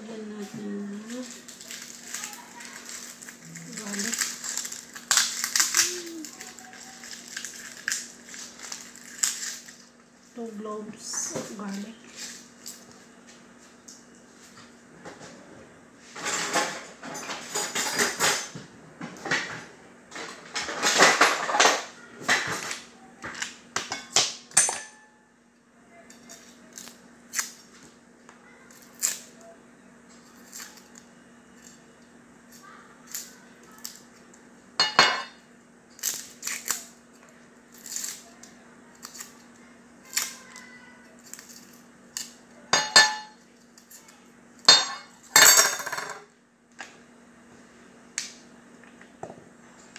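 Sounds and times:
garlic being peeled: 1.0s - 9.8s, 28.7s - 29.5s, 36.0s - 42.4s.

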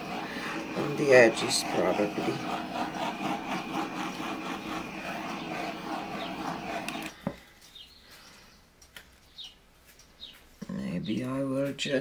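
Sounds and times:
pulsing mechanical hum: 0.0s - 7.2s.

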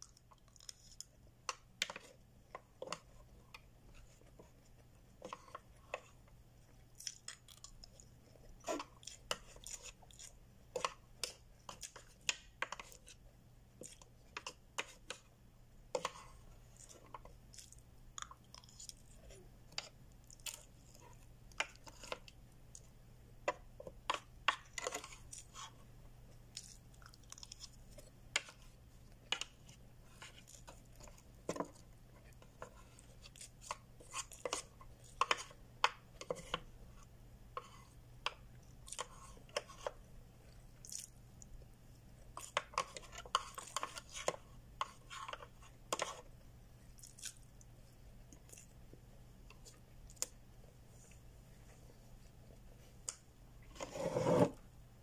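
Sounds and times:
chewing: 6.9s - 12.1s, 16.6s - 22.9s, 26.5s - 28.5s, 40.4s - 41.6s
plastic cutlery scraping plastic tray: 53.7s - 54.6s.

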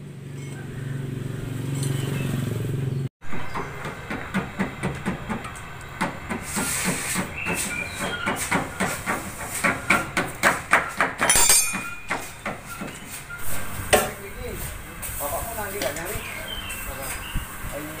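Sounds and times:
ringing metal clatter: 11.2s - 12.8s.

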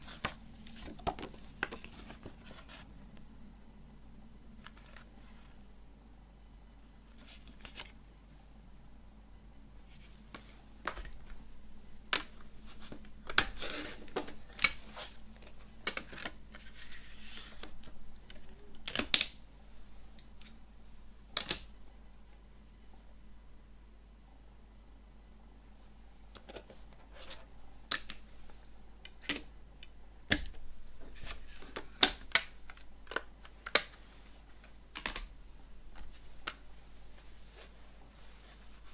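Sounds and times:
crinkly rustles: 0.0s - 3.2s
plastic case clicking and snapping: 35.0s - 35.3s.

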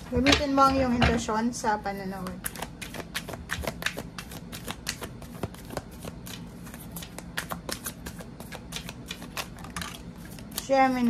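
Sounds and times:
cards being shuffled: 2.2s - 11.0s.

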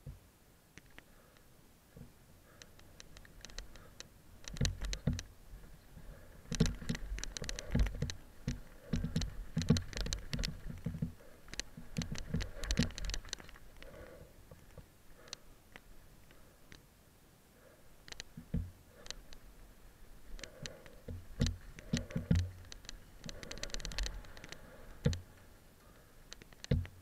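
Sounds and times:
mountain bike rattling over dirt: 6.0s - 14.0s, 21.3s - 25.1s
wheels thumping on bumps: 6.4s - 13.4s.

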